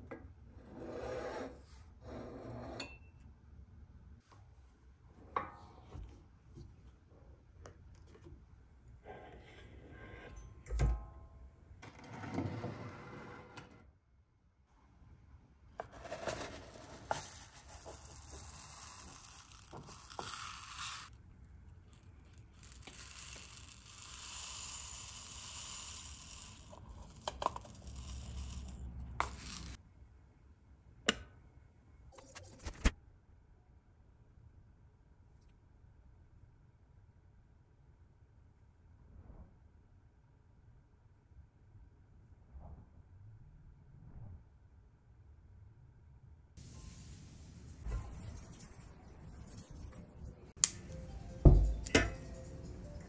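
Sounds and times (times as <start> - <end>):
plastic pellets poured into glass: 17.2 - 21.2, 22.0 - 29.8.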